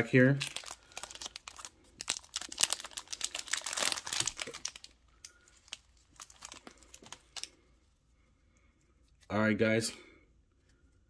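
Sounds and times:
foil wrapper crinkling: 0:00.0 - 0:07.6.

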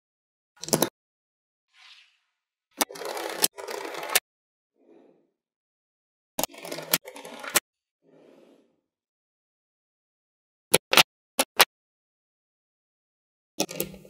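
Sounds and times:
balls rattling and scraping: 0:06.4 - 0:07.6.

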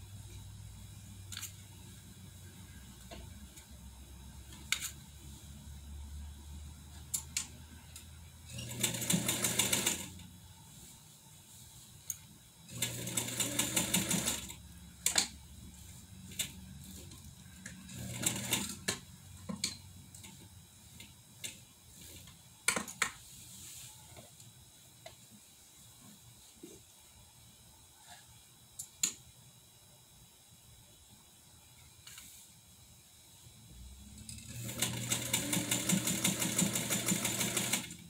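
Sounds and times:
sewing machine stitching: 0:08.5 - 0:10.2, 0:12.7 - 0:14.6, 0:17.9 - 0:18.9, 0:34.3 - 0:38.0.

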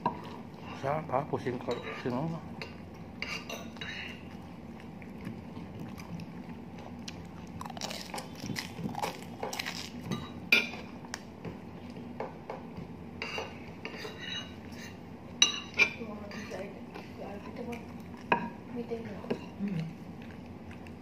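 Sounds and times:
cutlery clinking and scraping plate: 0:01.6 - 0:04.2, 0:13.2 - 0:16.6.

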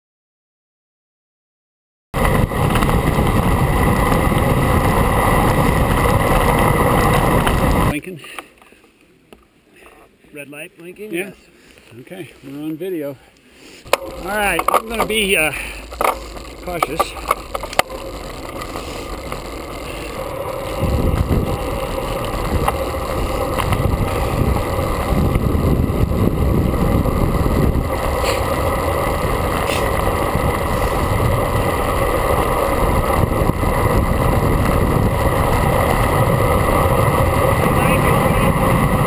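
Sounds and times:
wind buffeting microphone: 0:02.2 - 0:07.9, 0:13.9 - 0:39.0.

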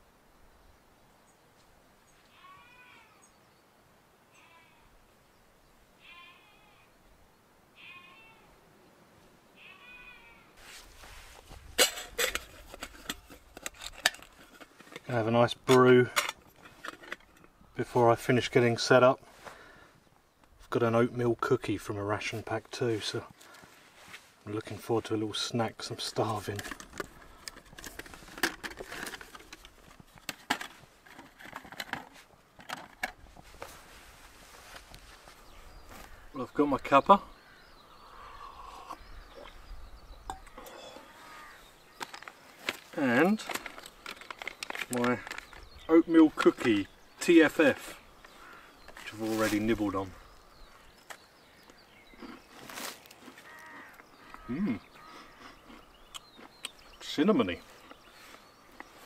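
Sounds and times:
sheep bleating: 0:06.0 - 0:06.9, 0:09.6 - 0:10.5, 0:53.4 - 0:54.6
metal windscreen clinking: 0:11.6 - 0:17.4
metal pot and lid clinking: 0:11.8 - 0:13.4.

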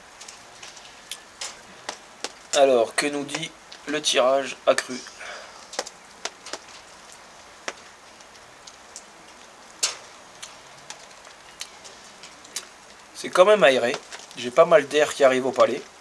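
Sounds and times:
faint steady hiss: 0:00.0 - 0:16.0
sharp ticks and clicks: 0:05.7 - 0:13.1.

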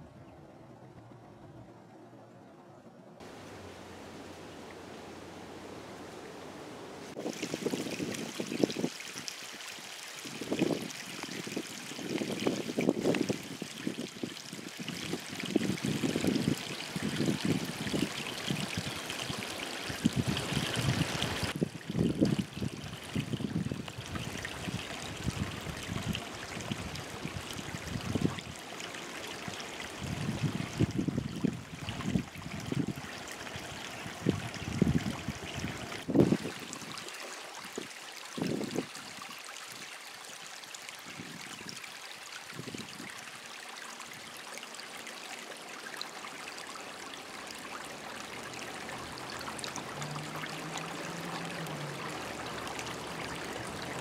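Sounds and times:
creek trickling over stones: 0:03.2 - 0:54.0.

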